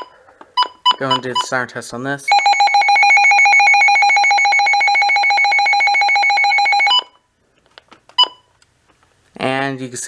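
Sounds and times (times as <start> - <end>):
pulsing electronic alarm tone: 2.3 - 7.2.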